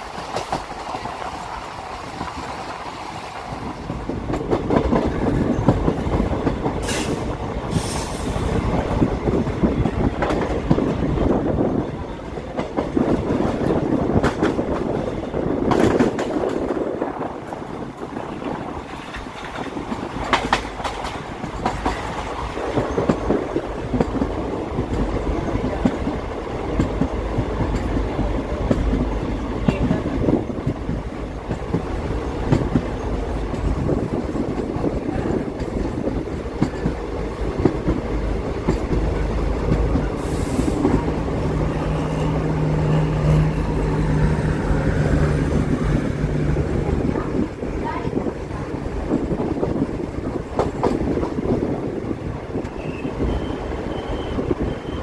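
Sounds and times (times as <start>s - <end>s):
train rumbling: 0.0s - 55.0s
wheels clacking over rail joints: 17.4s - 51.7s.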